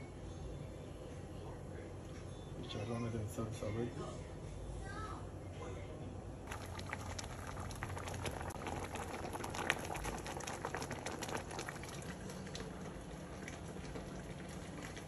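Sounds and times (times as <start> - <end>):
pot simmering with bubbling pops: 6.5 - 15.0.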